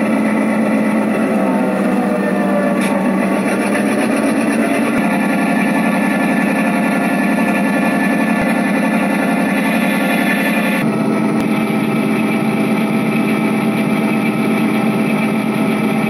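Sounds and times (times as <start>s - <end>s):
model train rumbling on track: 0.0s - 16.0s.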